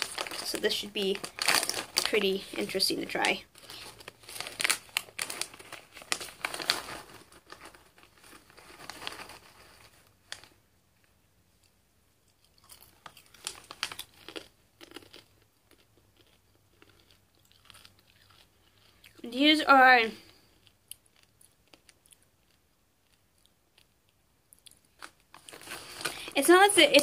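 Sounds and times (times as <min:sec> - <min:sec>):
popcorn chewing crunches: 0:00.0 - 0:09.8, 0:11.6 - 0:19.3, 0:20.2 - 0:26.4
snack bag tearing and crinkling: 0:00.0 - 0:10.6, 0:12.3 - 0:19.3, 0:24.6 - 0:27.0.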